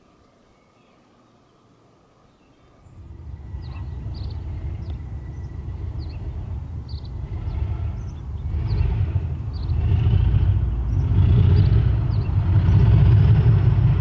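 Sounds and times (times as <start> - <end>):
birds chirping: 0.0 - 14.0
locomotive diesel engine rumble: 2.8 - 14.0.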